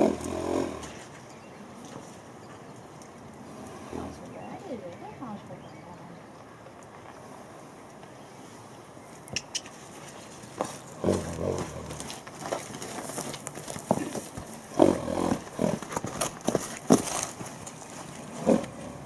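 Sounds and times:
horse moving in mud: 8.1 - 19.0
sharp clicks: 9.3 - 9.8.

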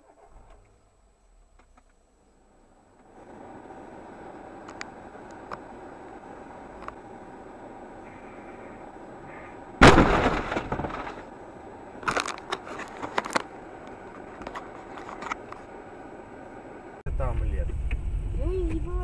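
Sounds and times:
breaking parts cracking: 9.8 - 11.3
car collision crunch: 9.8 - 11.4, 12.0 - 15.7.

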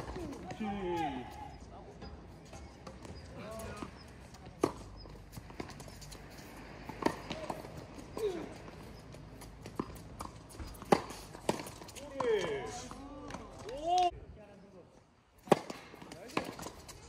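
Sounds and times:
racquets striking tennis ball: 2.5 - 14.1, 15.4 - 17.0.

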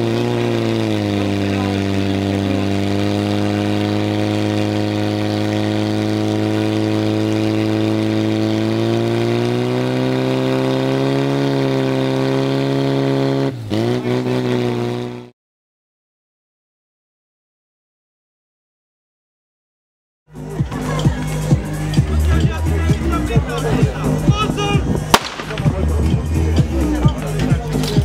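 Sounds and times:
pump engine running at high revs: 0.0 - 15.3.

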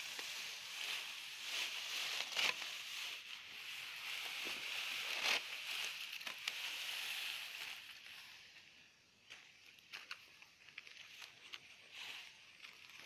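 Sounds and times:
steady high hiss: 0.0 - 9.8
dry straw rustling and crackling: 0.0 - 13.0.

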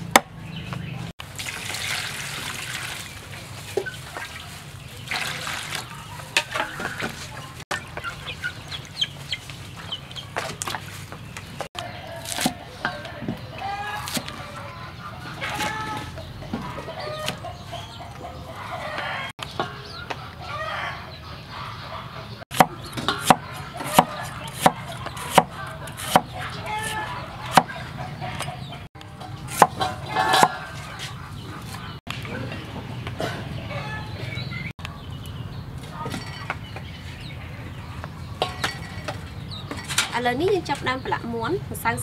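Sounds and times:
chickens clucking and crowing: 3.5 - 40.1
cleaver chopping on wooden board: 22.5 - 26.3.

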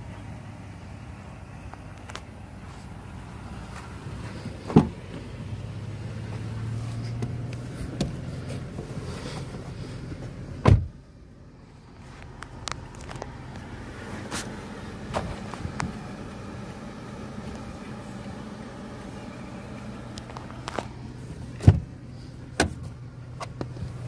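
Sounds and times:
low steady hum: 0.0 - 24.0
low steady rumble: 0.0 - 24.0
truck door thudding shut: 4.7 - 5.0, 10.6 - 10.9, 21.6 - 21.9.

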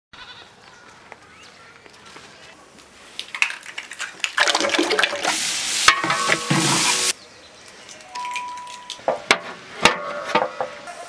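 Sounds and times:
liquid pouring into metal pot: 3.3 - 5.4.

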